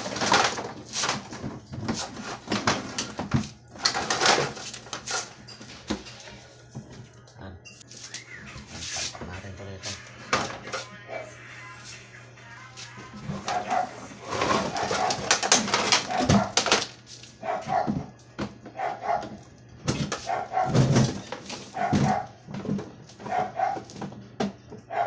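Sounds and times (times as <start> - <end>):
plastic parts clattering: 0.0 - 6.2, 13.3 - 17.0
dog barking: 13.4 - 14.1, 16.1 - 16.6, 17.4 - 19.4, 20.2 - 20.9, 21.7 - 22.4, 23.2 - 23.9.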